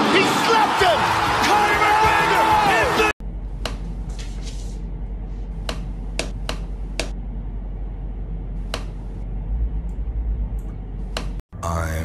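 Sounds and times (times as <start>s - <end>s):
low hum: 3.2s - 11.4s.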